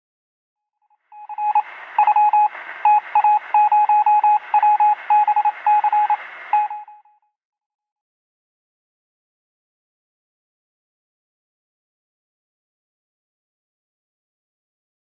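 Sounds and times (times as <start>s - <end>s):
electronic beeps: 1.1s - 7.2s
static hiss: 1.2s - 6.8s.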